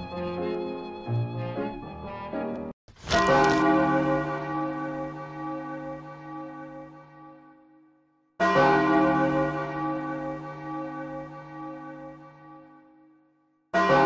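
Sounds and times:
large church bell tolling: 0:03.2 - 0:07.7, 0:08.4 - 0:13.1, 0:13.7 - 0:14.0.

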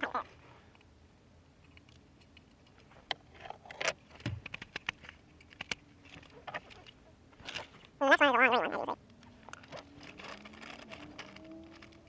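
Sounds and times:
plastic clicks and rattles: 0:01.6 - 0:07.8, 0:09.1 - 0:12.0.

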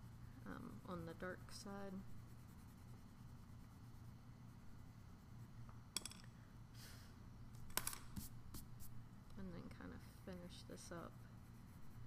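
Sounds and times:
pencil scratching on paper: 0:00.0 - 0:04.2, 0:11.0 - 0:12.0.

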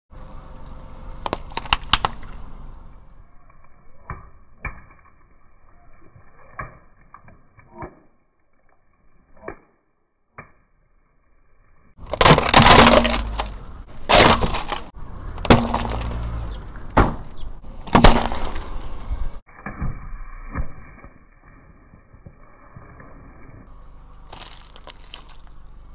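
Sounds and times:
cans crunching under tyre: 0:12.0 - 0:18.8, 0:24.3 - 0:25.6.

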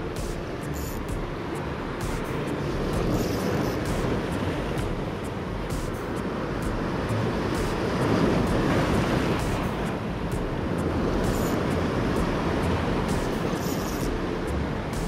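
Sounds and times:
sea waves washing on shore: 0:00.0 - 0:15.0
wind buffeting microphone: 0:00.0 - 0:15.0.

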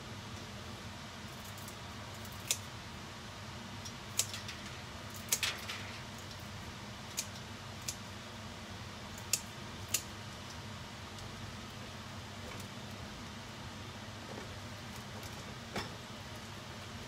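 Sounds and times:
low steady hum: 0:00.0 - 0:17.0
scissors snipping dry noodles: 0:01.4 - 0:02.7, 0:03.8 - 0:04.5, 0:05.1 - 0:05.4, 0:07.1 - 0:08.0, 0:09.1 - 0:10.1.

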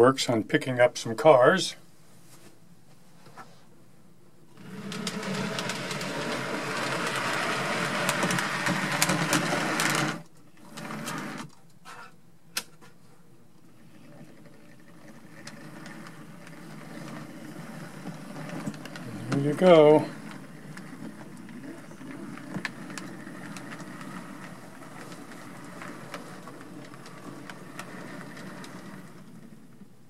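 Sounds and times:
model train motor buzzing: 0:04.6 - 0:10.2
wheel clicks: 0:04.6 - 0:11.5, 0:14.2 - 0:29.6.

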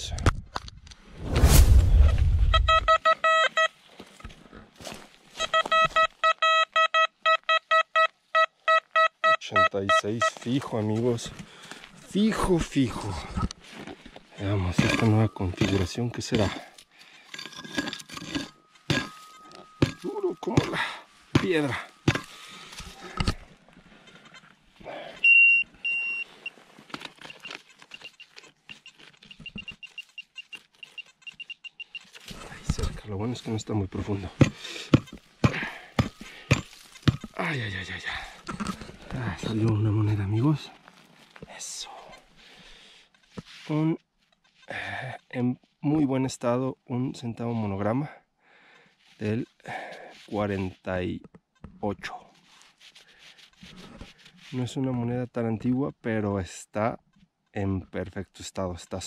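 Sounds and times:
digging in stony ground: 0:00.0 - 0:06.3, 0:10.0 - 0:46.6, 0:48.8 - 0:59.0
metal detector beeps: 0:02.0 - 0:03.8, 0:05.4 - 0:10.7, 0:14.4 - 0:16.5, 0:18.4 - 0:20.8, 0:25.2 - 0:32.2.

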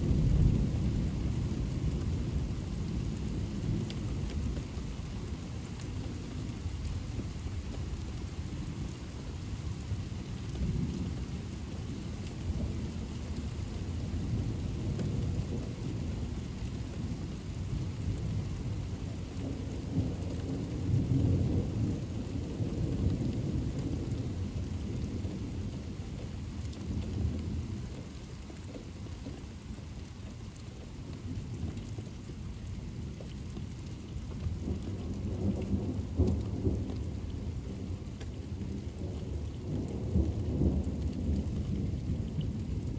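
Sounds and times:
low rolling thunder: 0:00.0 - 0:04.7, 0:10.6 - 0:28.1, 0:31.3 - 0:42.9
steady rainfall: 0:00.0 - 0:42.9.

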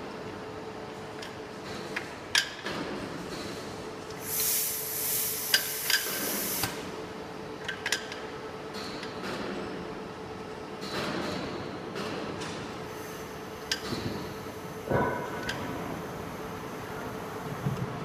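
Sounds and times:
compressed air hissing: 0:04.2 - 0:06.8.

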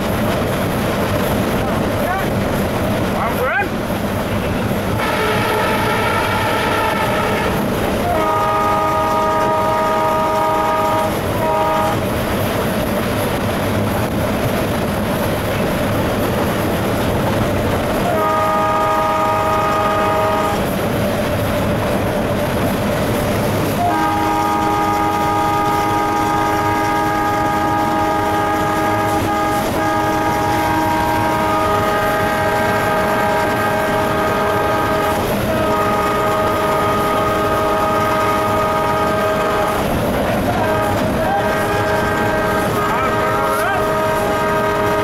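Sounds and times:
locomotive engine and wheels on rail: 0:00.0 - 0:45.0
locomotive horn blasts: 0:04.9 - 0:12.1, 0:18.0 - 0:20.7, 0:23.7 - 0:45.0.

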